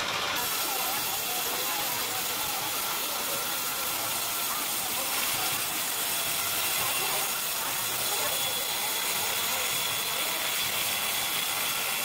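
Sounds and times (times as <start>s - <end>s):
band saw hissing: 0.0s - 12.0s.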